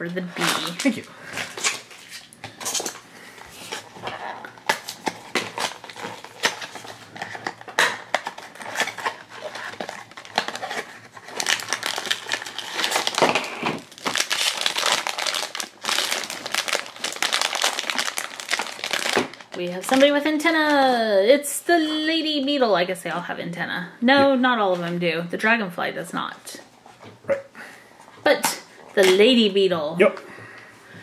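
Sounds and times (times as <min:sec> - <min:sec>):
foil bag crinkling and tearing: 0:00.4 - 0:20.2.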